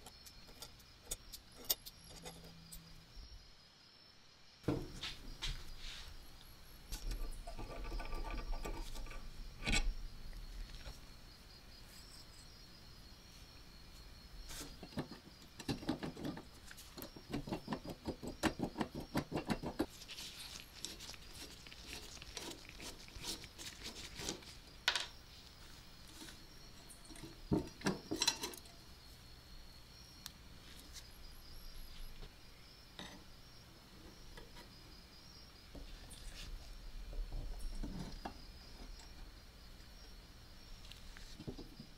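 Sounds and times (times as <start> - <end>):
screw turning with grating ticks: 0.0 - 2.9, 6.9 - 9.9, 15.6 - 24.6.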